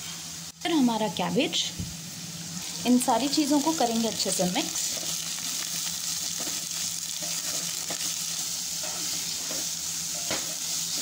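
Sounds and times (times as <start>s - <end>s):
vegetables sizzling in hot oil: 0.0s - 11.0s
spatula scraping a pan: 6.2s - 11.0s.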